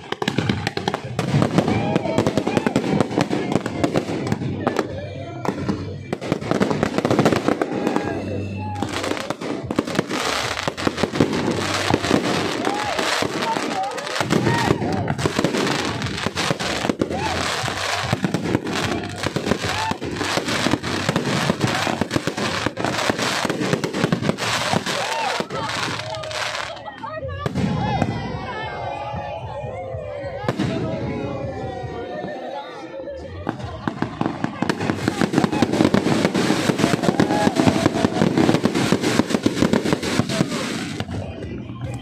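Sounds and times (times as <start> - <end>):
fireworks bangs and crackling: 0.0 - 32.0, 32.7 - 42.0.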